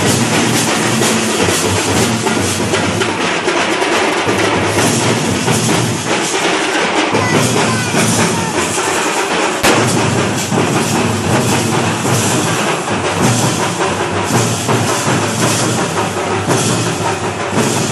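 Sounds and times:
dense drumming: 0.0s - 17.9s
bright cymbal crash: 4.8s - 17.0s.

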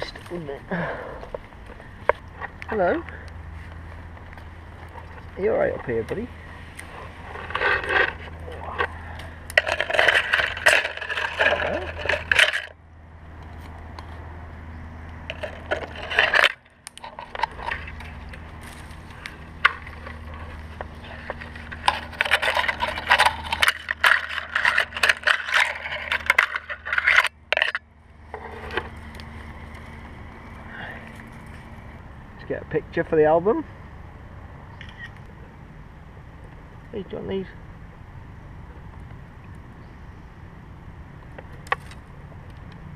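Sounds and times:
branches rustling and snapping: 0.0s - 14.3s, 14.9s - 32.2s, 41.1s - 42.9s
low hum: 0.0s - 42.9s.

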